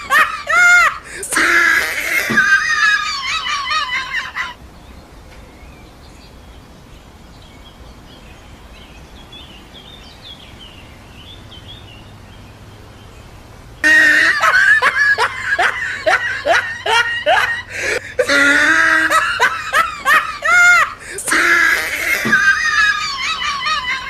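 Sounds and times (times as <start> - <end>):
rapid high-pitched falling cries: 0.0 - 4.6, 13.8 - 24.0.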